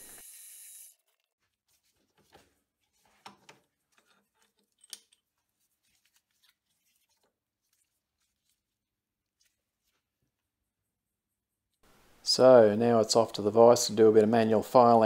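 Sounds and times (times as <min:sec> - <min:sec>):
gloved hands clicking and tapping metal: 0:03.2 - 0:05.2.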